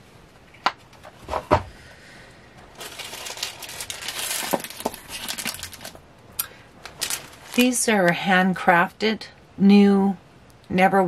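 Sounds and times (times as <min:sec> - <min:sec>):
plastic bag crinkling: 0:02.7 - 0:08.2.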